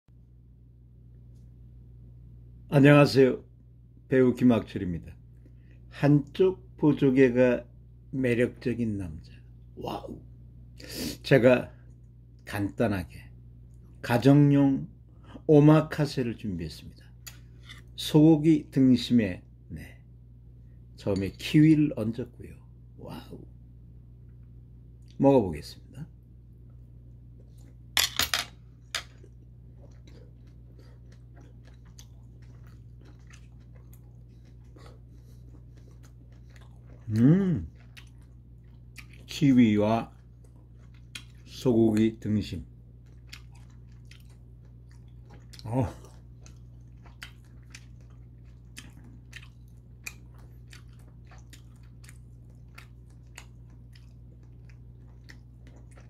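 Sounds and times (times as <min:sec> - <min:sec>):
wet chewing clicks: 0:29.1 - 0:42.3, 0:43.0 - 0:56.0.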